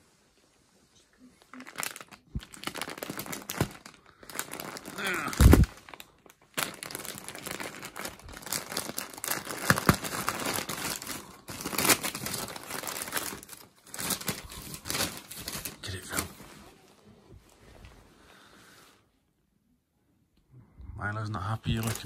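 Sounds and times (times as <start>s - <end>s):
wrapping paper crinkling and tearing: 1.4s - 16.6s, 21.7s - 22.0s.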